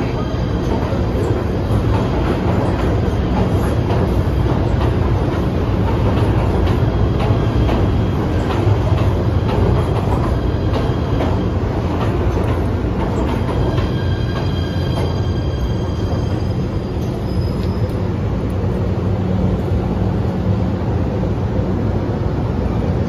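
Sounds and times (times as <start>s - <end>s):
wheels clacking over rail joints: 0.0s - 18.1s
subway train rumbling: 0.0s - 23.0s.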